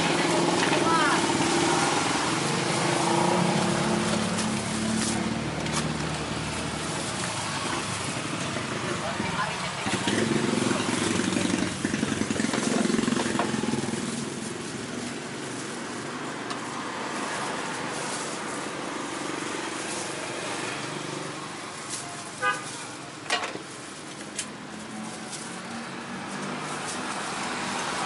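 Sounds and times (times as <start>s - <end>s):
street traffic passing: 0.0s - 28.0s
vehicle engine: 0.0s - 28.0s.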